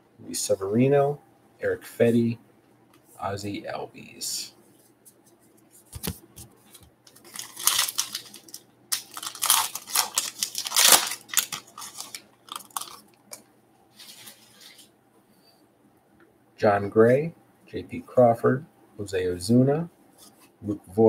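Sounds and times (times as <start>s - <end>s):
foil wrapper tearing and crinkling: 7.1s - 13.1s.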